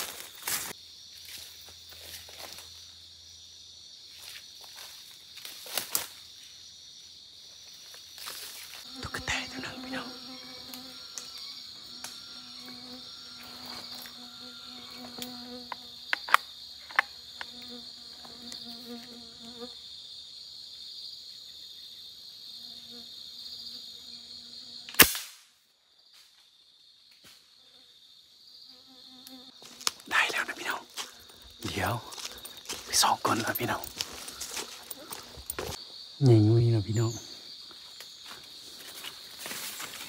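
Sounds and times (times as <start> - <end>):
low buzzing insect hum: 0.0 - 25.0, 25.8 - 40.0
high drone of forest insects: 0.0 - 40.0
loud gunshot: 25.0 - 25.4.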